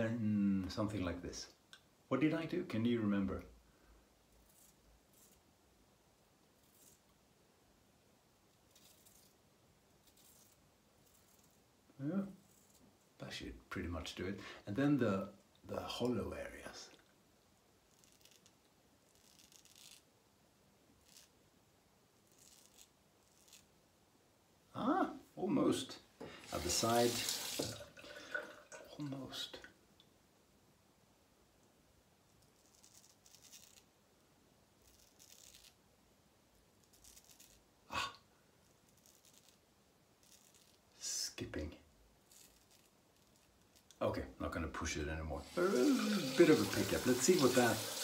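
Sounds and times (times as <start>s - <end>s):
razor scratching stubble: 4.4s - 5.4s, 6.6s - 7.0s, 8.7s - 9.4s, 10.0s - 11.6s, 12.3s - 12.9s, 17.9s - 20.1s, 21.0s - 21.3s, 22.2s - 23.7s, 32.4s - 33.9s, 34.8s - 35.8s, 36.8s - 37.6s, 38.9s - 39.6s, 40.2s - 40.9s, 42.3s - 44.0s.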